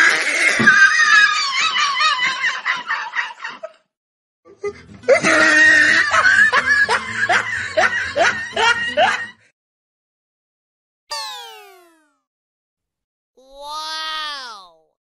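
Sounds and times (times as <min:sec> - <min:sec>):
person laughing hard: 0:05.1 - 0:09.3.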